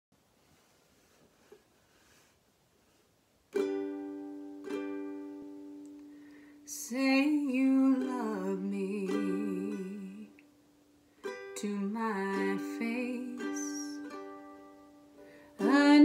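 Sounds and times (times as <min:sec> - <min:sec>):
ukulele chord strummed: 0:03.5 - 0:16.0
woman singing: 0:06.7 - 0:10.4, 0:11.5 - 0:14.1, 0:15.6 - 0:16.0.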